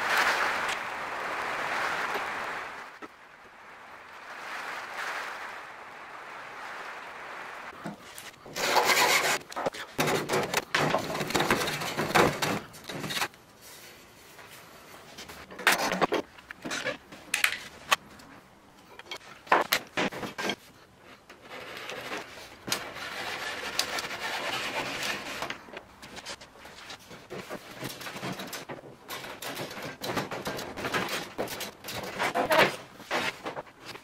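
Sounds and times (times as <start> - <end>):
wood pieces scraping and knocking: 7.8 - 13.4, 15.0 - 18.1, 18.9 - 34.0
hand saw cutting wood: 8.5 - 12.5, 21.9 - 25.6.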